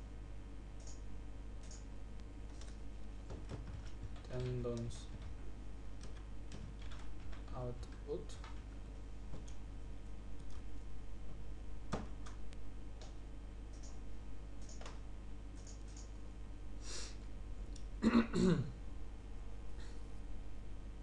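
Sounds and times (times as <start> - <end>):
low electrical hum: 0.0 - 21.0
computer mouse clicks: 0.8 - 1.0, 1.6 - 1.9, 2.5 - 2.8, 10.4 - 10.6, 13.0 - 14.0, 14.6 - 16.2
person clearing throat: 18.0 - 18.8.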